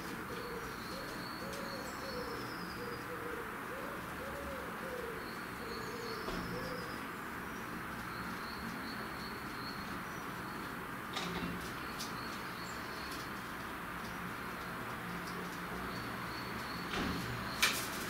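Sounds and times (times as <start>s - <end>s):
steady background hiss: 0.0s - 18.0s
pigeon cooing: 0.2s - 7.0s.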